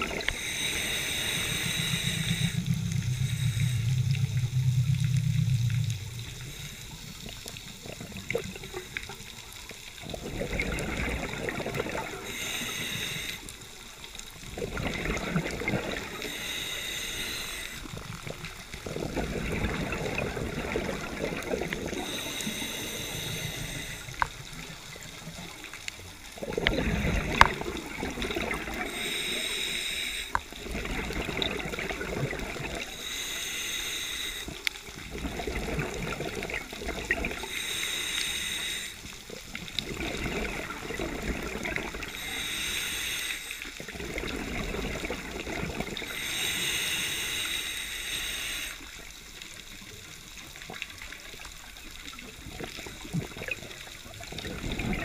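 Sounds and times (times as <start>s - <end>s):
diver inhaling through regulator hiss: 0.1s - 7.6s, 12.0s - 14.2s, 15.1s - 18.2s, 21.8s - 24.7s, 27.0s - 30.6s, 32.8s - 35.0s, 37.3s - 39.4s, 41.9s - 43.9s, 45.9s - 49.1s
burst of bubbles: 26.4s - 28.9s.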